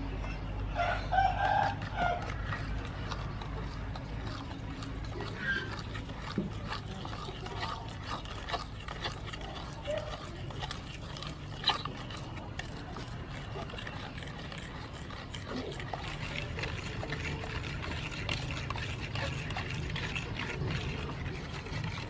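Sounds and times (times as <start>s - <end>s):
chickens clucking: 0.2s - 5.8s
metal spoon scraping a pot: 1.2s - 22.0s.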